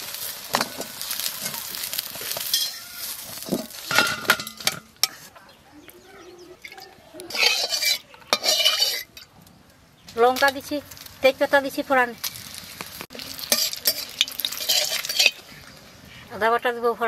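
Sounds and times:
oil sizzling: 0:00.0 - 0:05.3, 0:06.5 - 0:16.2
metal spatula scraping pan: 0:02.2 - 0:05.3, 0:07.2 - 0:09.3, 0:13.2 - 0:15.7.

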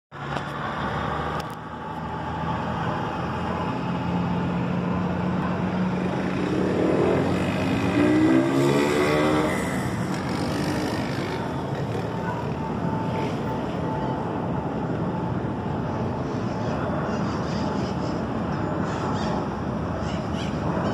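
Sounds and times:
city traffic rumble: 0:00.1 - 0:20.9
vehicle engine passing: 0:00.2 - 0:12.3.

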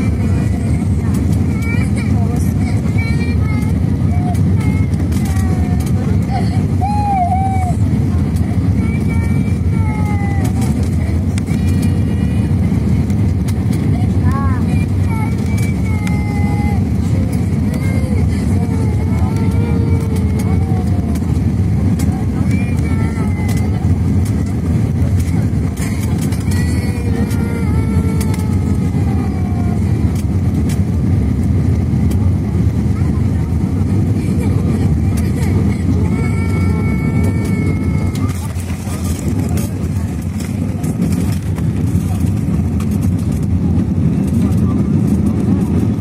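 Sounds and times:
airliner cabin roar: 0:00.0 - 0:46.0.

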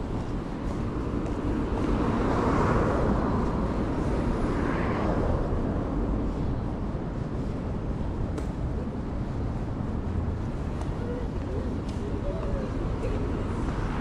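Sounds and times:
traffic rumble: 0:00.0 - 0:14.0
car passing: 0:00.8 - 0:07.9.

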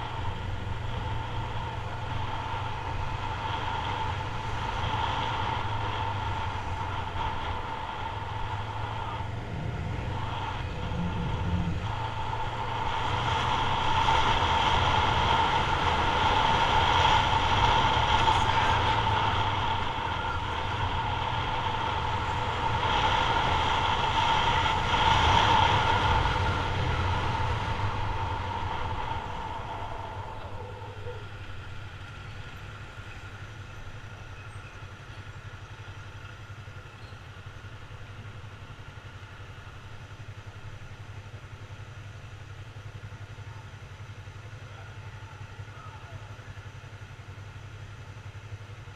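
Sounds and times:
motorcycle engine running: 0:00.0 - 0:48.9
wind rush: 0:03.6 - 0:31.4.

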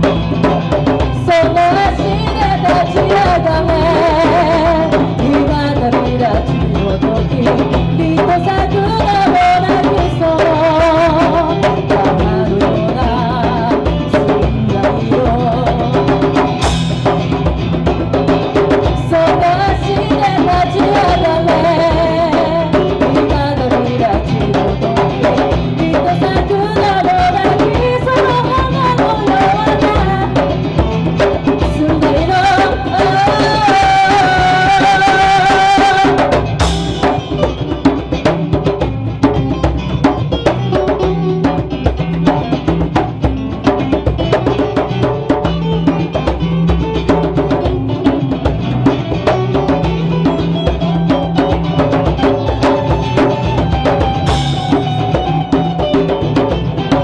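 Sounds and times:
woman singing: 0:00.0 - 0:16.7, 0:18.8 - 0:38.2
hand percussion: 0:00.0 - 0:57.0
plucked strings: 0:00.0 - 0:57.0.

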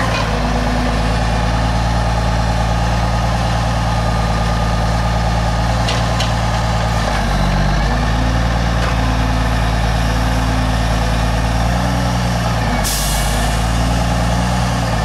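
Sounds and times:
diesel truck engine under load: 0:00.0 - 0:15.0.

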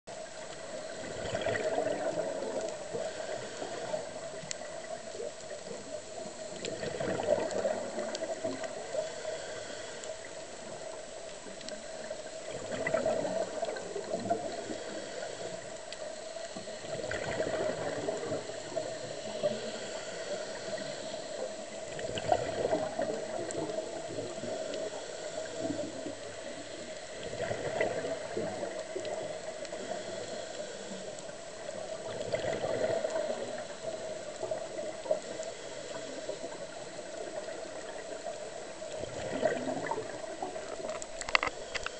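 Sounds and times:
watery hiss: 0:00.3 - 0:41.9
regulator bubbles rushing: 0:01.0 - 0:02.6, 0:06.6 - 0:08.6, 0:39.0 - 0:40.9.

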